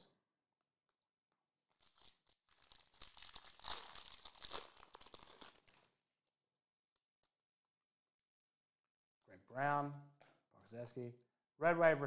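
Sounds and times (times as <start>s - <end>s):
foil wrapper tearing and crinkling: 1.7s - 5.9s.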